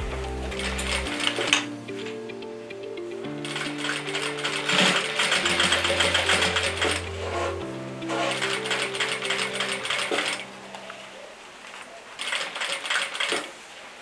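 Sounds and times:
sewing machine stitching: 0:12.2 - 0:13.5.

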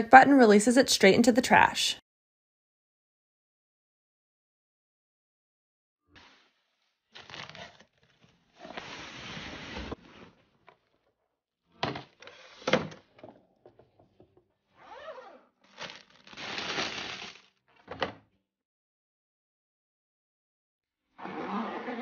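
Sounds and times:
cardboard and plastic rustling: 0:15.7 - 0:17.4.

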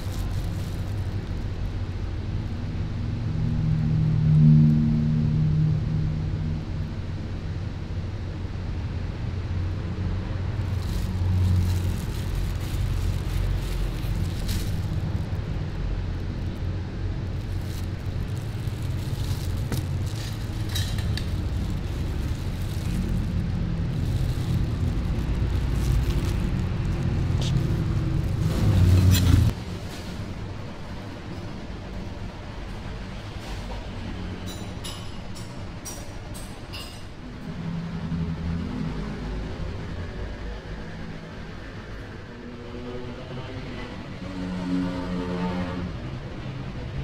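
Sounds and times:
low background rumble: 0:00.0 - 0:29.7.

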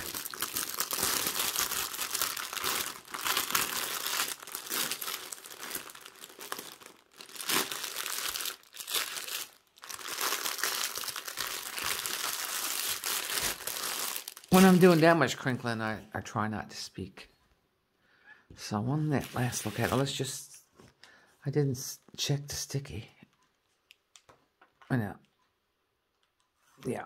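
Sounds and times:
plastic film crinkling: 0:00.0 - 0:15.4, 0:19.2 - 0:20.2.

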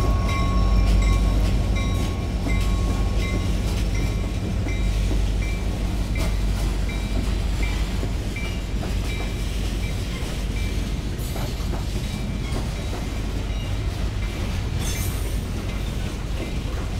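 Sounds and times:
train wheels rumbling: 0:00.0 - 0:16.9
wheels clacking on rail joints: 0:00.0 - 0:16.9.

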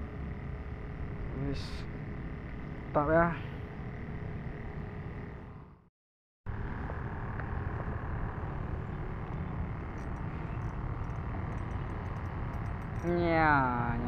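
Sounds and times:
low rumble with hiss: 0:06.5 - 0:14.0.

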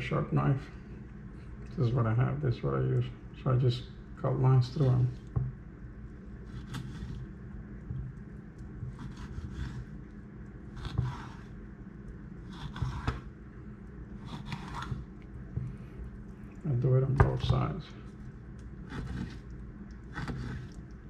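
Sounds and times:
knife scraping fish skin: 0:06.5 - 0:07.2, 0:08.8 - 0:10.0, 0:10.7 - 0:11.6, 0:12.4 - 0:13.3, 0:14.2 - 0:15.1, 0:18.8 - 0:19.5, 0:20.1 - 0:20.8.

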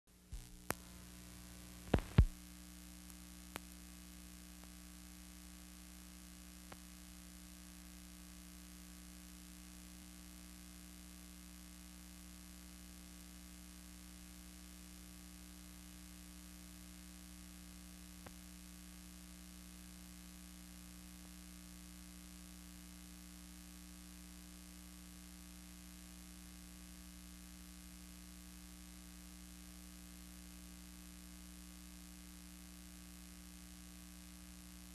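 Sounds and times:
low electrical hum: 0:00.1 - 0:34.9
constant hiss: 0:00.2 - 0:07.0
faint clicks: 0:01.8 - 0:02.4
loud pops: 0:01.8 - 0:02.4.

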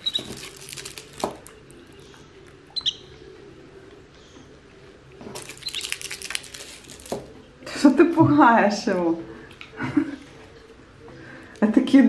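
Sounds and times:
parrot chirping: 0:00.0 - 0:01.2, 0:02.0 - 0:03.4, 0:05.5 - 0:06.4
candy wrapper crackling: 0:00.0 - 0:02.6, 0:05.3 - 0:07.3.

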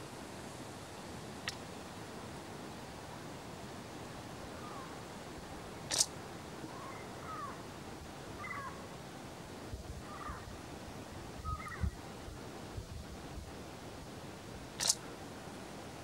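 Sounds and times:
steady hiss: 0:00.0 - 0:16.0
sharp click: 0:05.9 - 0:06.1, 0:14.8 - 0:15.0.

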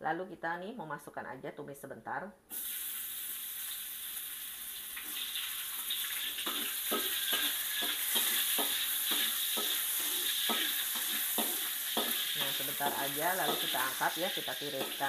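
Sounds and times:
sausage sizzling in hot oil: 0:02.5 - 0:15.0
spatula scraping a wok: 0:06.1 - 0:15.0.

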